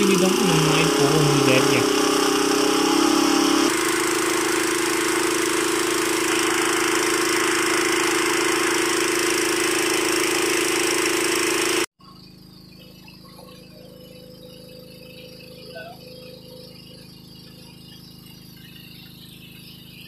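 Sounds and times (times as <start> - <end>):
water pump engine running: 0.0 - 11.9.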